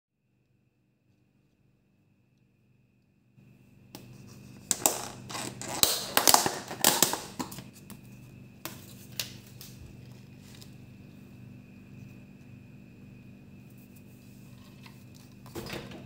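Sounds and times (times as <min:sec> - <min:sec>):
steady low hum: 0:06.1 - 0:16.0.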